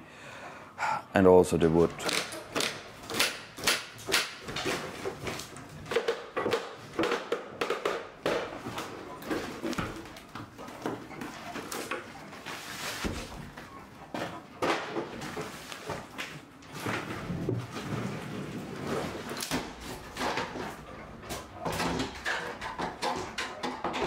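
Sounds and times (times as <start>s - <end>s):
wood splitting and breaking loose: 1.9s - 12.1s, 16.6s - 24.0s.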